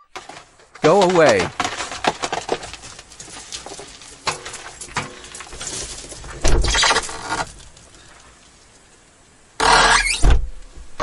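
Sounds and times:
door creaking: 0:06.4 - 0:07.5, 0:09.6 - 0:10.6.

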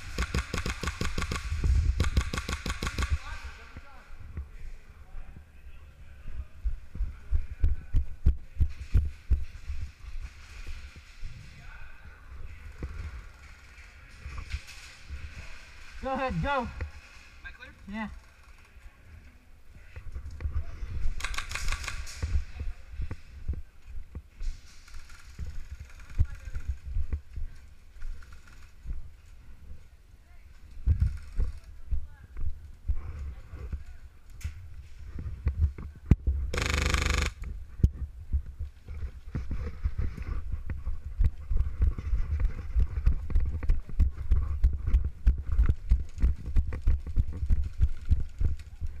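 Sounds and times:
airsoft gun burst: 0:00.0 - 0:03.6, 0:21.2 - 0:22.2, 0:36.5 - 0:37.4
rapid clicks: 0:36.5 - 0:37.5.

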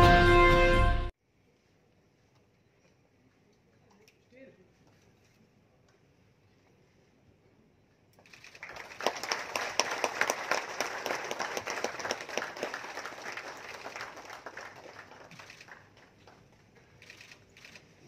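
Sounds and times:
audience applauding: 0:08.6 - 0:16.6.

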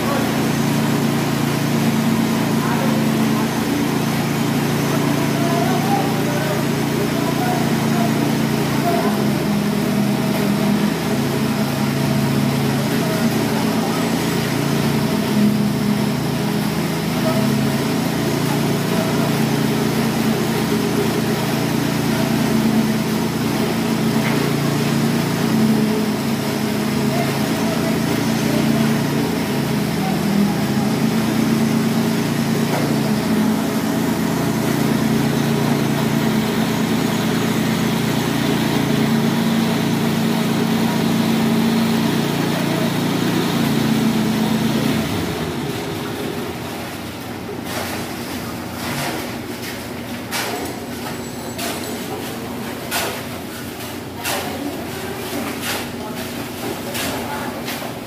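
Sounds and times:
engine running steadily: 0:00.0 - 0:58.0.

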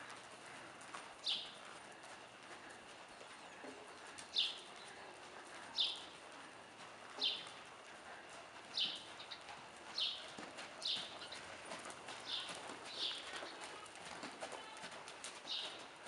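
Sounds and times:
horse hooves on soft footing: 0:00.0 - 0:16.0.

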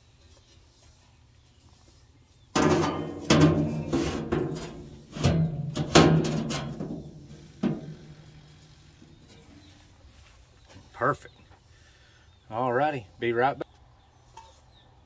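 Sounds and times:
steel plate shifting: 0:02.6 - 0:09.6.

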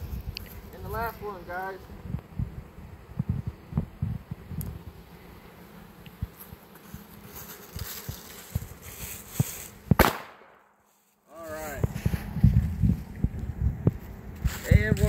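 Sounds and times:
firecracker bang: 0:09.9 - 0:10.8.

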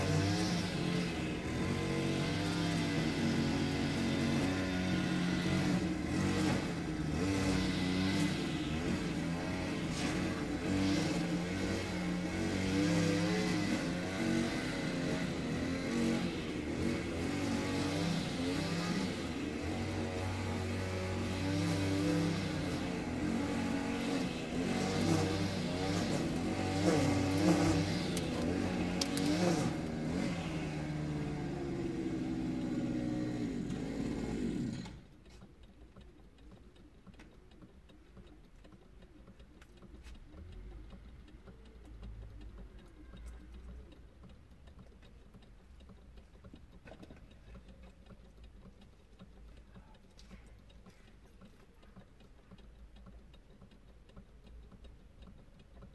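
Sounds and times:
car engine revving: 0:00.0 - 0:35.4.

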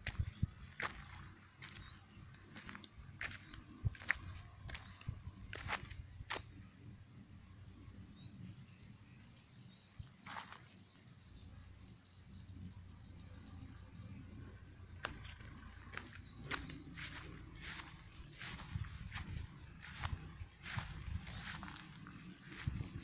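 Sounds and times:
footsteps through grass: 0:00.0 - 0:06.5, 0:15.0 - 0:23.0
insects droning: 0:00.0 - 0:23.0.

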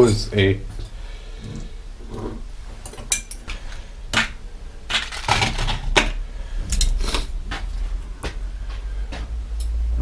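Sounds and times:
objects clattering on a workbench: 0:00.1 - 0:07.7.

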